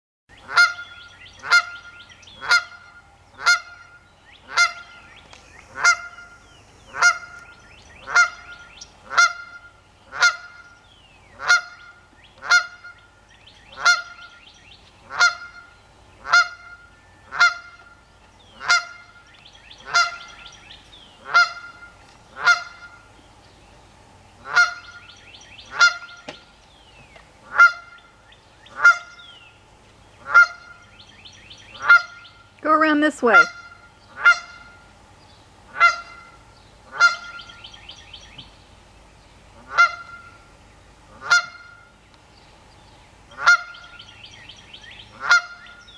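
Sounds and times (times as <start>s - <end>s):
goose honking: 0.4s - 5.0s, 5.7s - 7.4s, 8.0s - 10.8s, 11.4s - 13.0s, 13.7s - 14.4s, 15.0s - 20.4s, 21.2s - 23.1s, 24.4s - 25.0s, 25.6s - 26.2s, 27.4s - 28.1s, 28.7s - 29.3s, 30.2s - 30.9s, 31.7s - 34.9s, 35.7s - 37.7s, 39.5s - 40.5s, 41.1s - 41.9s, 43.3s - 43.9s, 45.1s - 45.9s.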